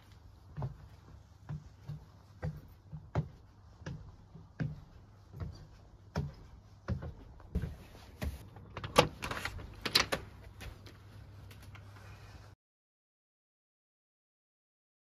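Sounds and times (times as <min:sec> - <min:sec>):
footsteps on wooden stairs: 0:00.0 - 0:08.7
door opening clicks and rattles: 0:08.6 - 0:10.4.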